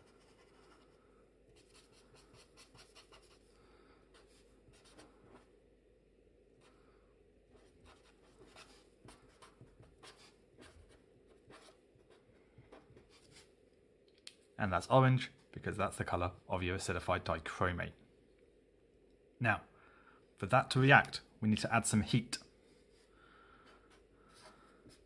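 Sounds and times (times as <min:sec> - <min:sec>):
felt-tip pen scratching on paper: 0:01.6 - 0:03.4, 0:07.5 - 0:13.5.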